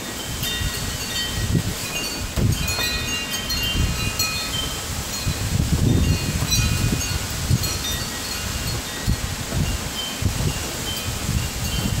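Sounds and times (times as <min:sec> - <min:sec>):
wind buffeting microphone: 0:00.0 - 0:12.0
wind chimes jangling: 0:00.0 - 0:12.0.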